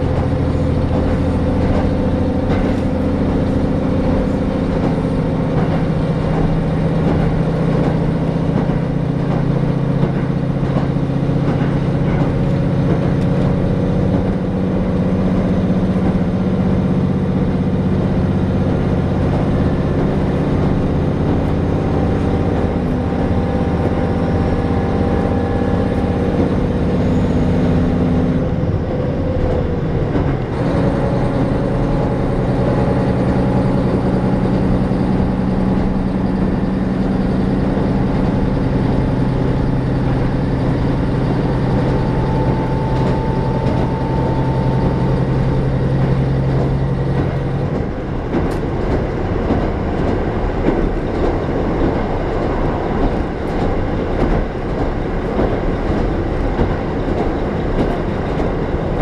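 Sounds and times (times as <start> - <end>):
wheels clicking over rail joints: 0.0 - 28.5, 29.2 - 59.0
diesel railcar engine: 0.0 - 59.0.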